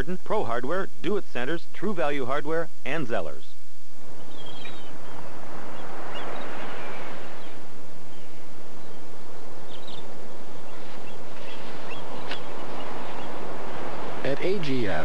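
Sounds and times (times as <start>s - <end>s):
short bird chirps: 4.2s - 9.0s
ocean waves washing onto beach: 5.0s - 15.0s.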